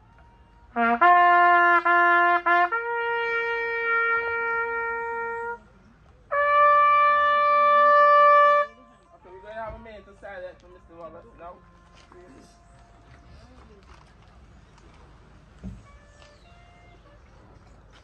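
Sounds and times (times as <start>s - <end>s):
bugle call on brass horn: 0.7s - 5.6s, 6.3s - 8.9s.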